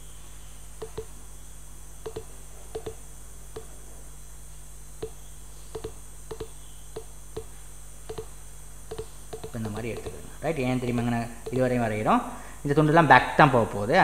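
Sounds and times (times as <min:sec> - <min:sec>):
mouse button clicking: 0:05.8 - 0:07.5, 0:08.1 - 0:08.3.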